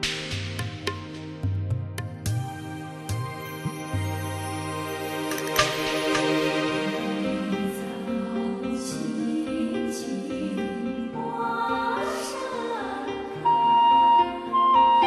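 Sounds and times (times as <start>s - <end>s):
high held melody line: 13.4s - 15.0s.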